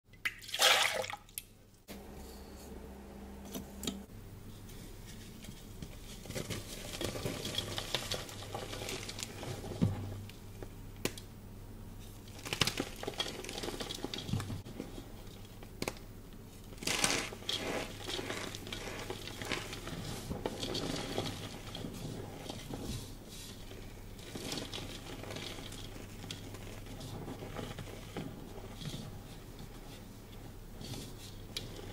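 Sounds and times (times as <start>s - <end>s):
powder rustling: 4.6s - 10.2s, 12.0s - 15.8s, 16.5s - 31.9s
chalk crunching and crinkling: 12.0s - 31.9s.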